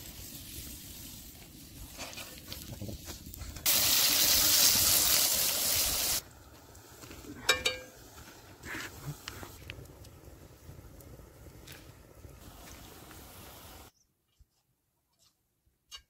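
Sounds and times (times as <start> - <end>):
deep-frying sizzle: 3.6 - 6.3.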